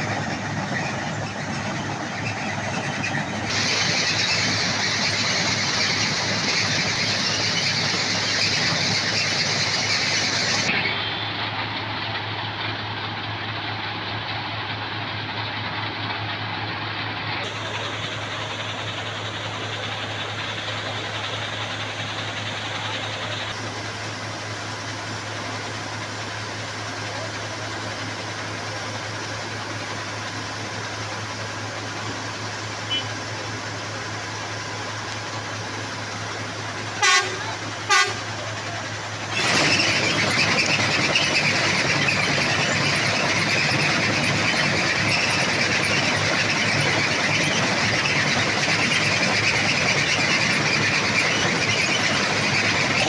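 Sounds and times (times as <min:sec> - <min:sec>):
diesel engine running: 0:00.0 - 0:53.0
rough machine noise: 0:00.0 - 0:53.0
short horn toots: 0:37.0 - 0:38.3.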